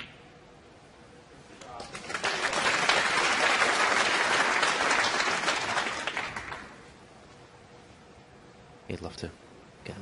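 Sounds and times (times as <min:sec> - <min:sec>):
audience applauding: 0:01.8 - 0:06.8.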